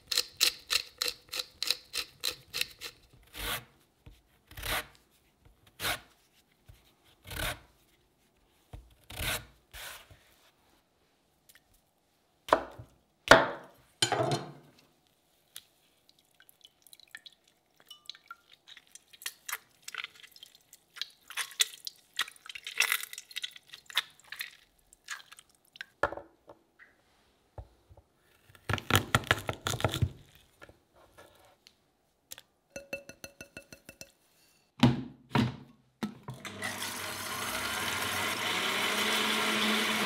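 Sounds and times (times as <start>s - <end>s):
small crackles and drips: 15.0s - 26.0s.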